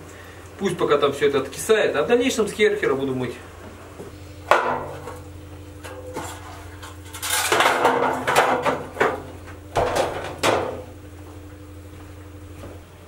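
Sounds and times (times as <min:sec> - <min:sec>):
metal trays clattering: 0:05.9 - 0:09.2.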